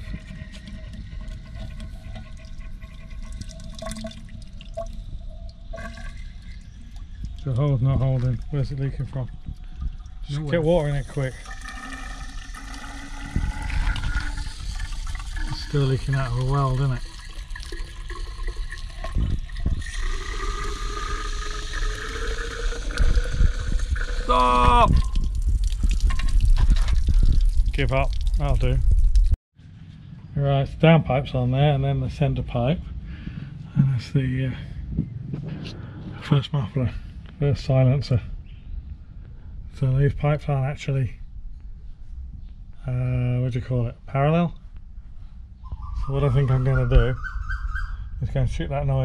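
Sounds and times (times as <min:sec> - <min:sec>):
water running into a pipe: 0:00.0 - 0:29.4.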